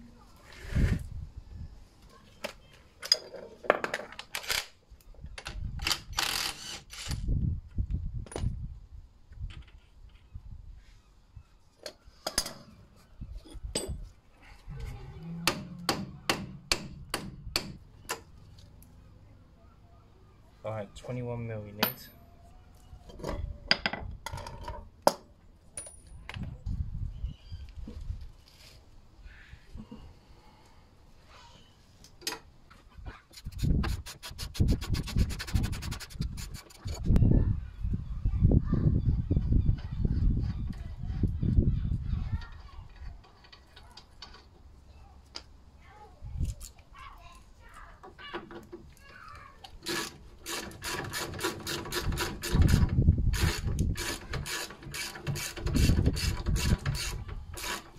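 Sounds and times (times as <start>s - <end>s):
tools clinking: 21.8s - 22.3s.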